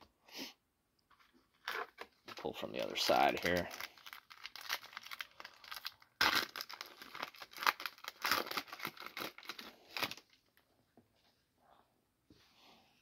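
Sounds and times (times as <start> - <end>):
foil wrapper tearing and crinkling: 2.8 - 10.4.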